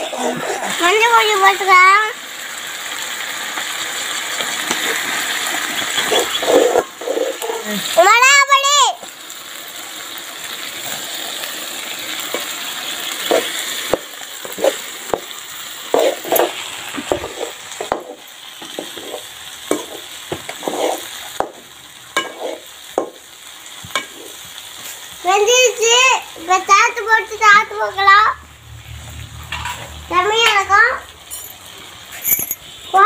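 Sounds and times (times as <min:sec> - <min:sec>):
snails sizzling in a pan: 0:00.0 - 0:33.0
ladle scraping a metal pan: 0:05.8 - 0:07.6, 0:15.9 - 0:18.2, 0:18.8 - 0:21.1, 0:22.2 - 0:22.6.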